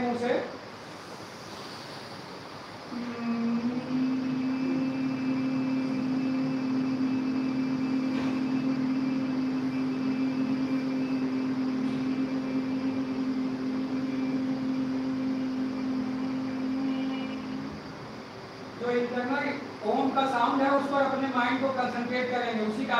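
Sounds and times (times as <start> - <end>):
group humming low drone: 2.9 - 19.1.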